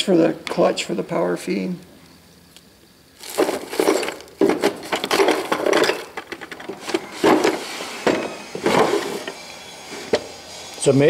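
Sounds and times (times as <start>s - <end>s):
metal parts rattling in drawer: 3.2s - 9.4s.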